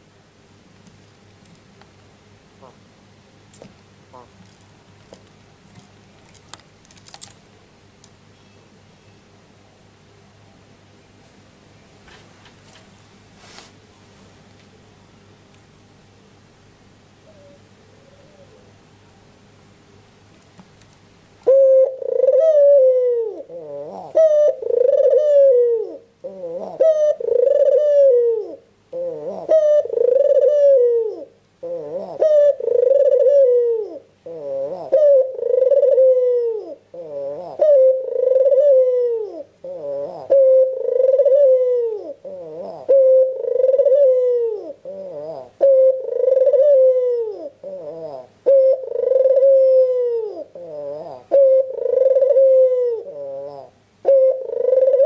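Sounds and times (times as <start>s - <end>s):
dove cooing: 2.6s - 2.8s, 4.1s - 4.5s, 17.2s - 18.7s, 21.4s - 55.0s.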